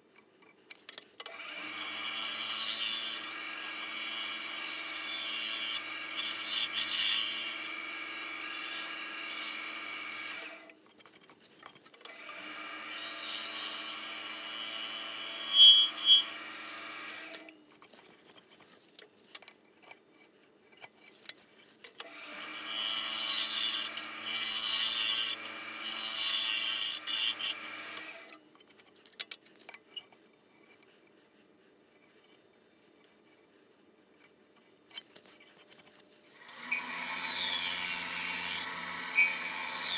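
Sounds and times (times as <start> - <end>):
wood lathe hum: 1.4 - 10.7, 12.1 - 17.5, 22.0 - 28.4, 36.4 - 39.9
gouge shaving wood on lathe: 1.5 - 10.6, 12.3 - 17.4, 22.1 - 28.1, 36.5 - 39.9.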